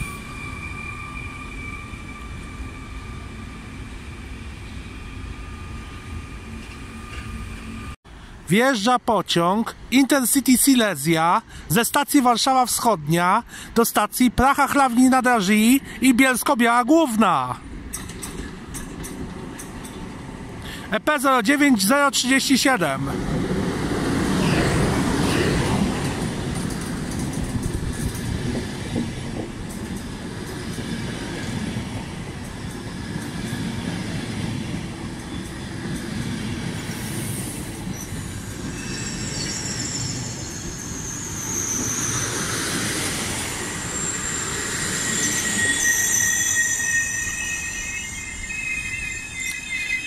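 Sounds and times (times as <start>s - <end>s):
high brake squeal: 0.0s - 8.0s, 36.9s - 50.0s
train wheels rumbling: 17.5s - 20.8s, 23.0s - 50.0s.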